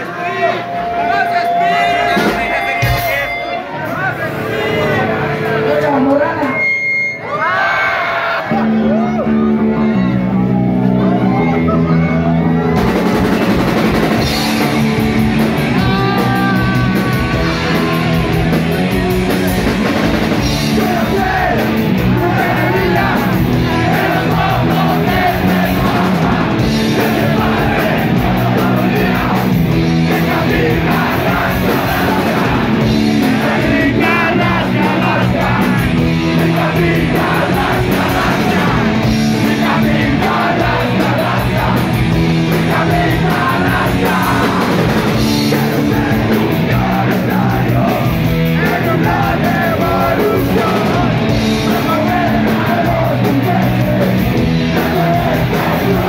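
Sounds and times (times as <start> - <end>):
punk rock band playing: 0.0 - 56.0
person shouting vocals: 15.8 - 18.3.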